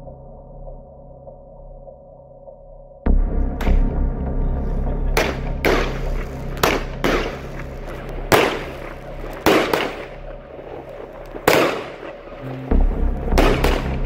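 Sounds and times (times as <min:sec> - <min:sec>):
firework bangs with echo: 0:05.1 - 0:14.0.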